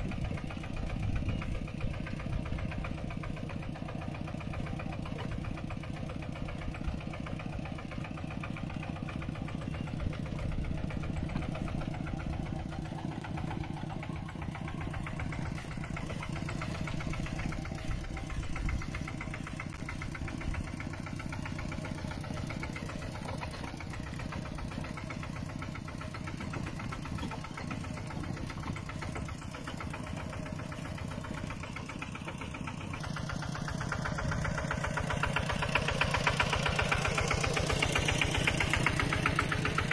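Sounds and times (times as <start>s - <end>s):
tractor engine running: 0.0s - 39.9s.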